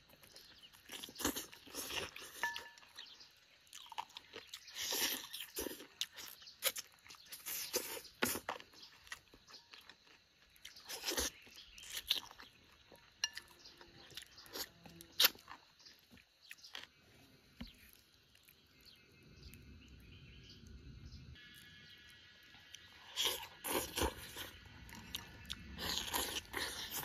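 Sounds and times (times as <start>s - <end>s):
person chewing crunchy chicken: 0.0s - 17.0s, 22.7s - 27.0s.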